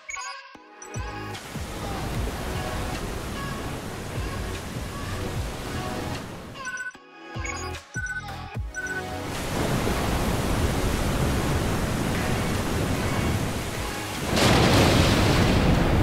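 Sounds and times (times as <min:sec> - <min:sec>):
ocean wave breaking: 0:01.4 - 0:06.6, 0:09.2 - 0:16.0.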